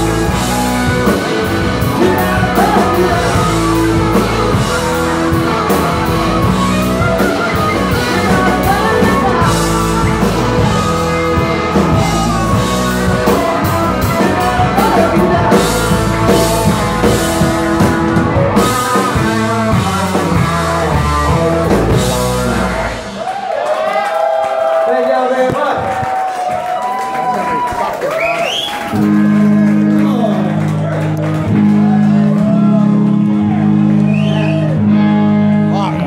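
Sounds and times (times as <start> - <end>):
drum kit: 0.0 - 23.5
bass guitar: 0.0 - 23.6, 25.4 - 36.0
electric guitars: 0.0 - 24.4, 25.3 - 36.0.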